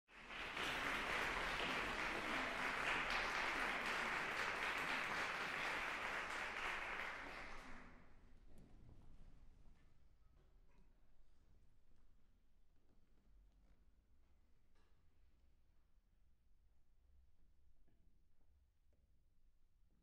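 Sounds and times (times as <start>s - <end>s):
audience applauding: 0.1s - 7.9s.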